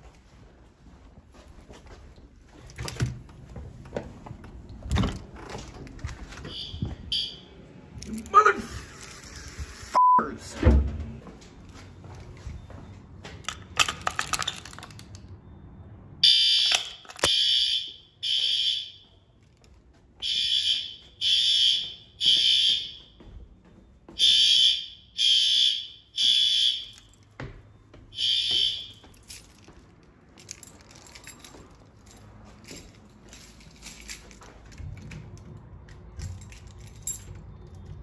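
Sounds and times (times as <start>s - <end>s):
fire alarm horn blasts: 6.5s - 7.5s, 16.2s - 19.3s, 20.2s - 23.2s, 24.2s - 27.1s, 28.1s - 29.1s
keys jangling: 13.4s - 15.2s, 29.0s - 38.0s.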